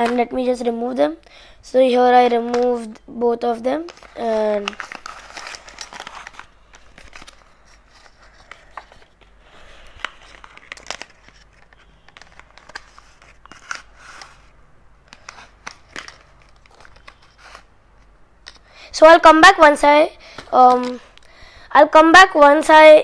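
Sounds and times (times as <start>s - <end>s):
cardboard and paper rustling: 3.8s - 18.6s.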